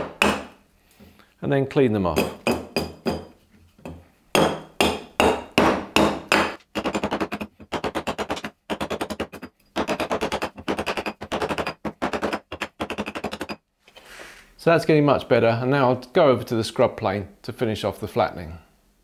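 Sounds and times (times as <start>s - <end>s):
hatchet chopping wood: 0.0s - 0.6s, 2.2s - 3.3s, 4.4s - 13.6s.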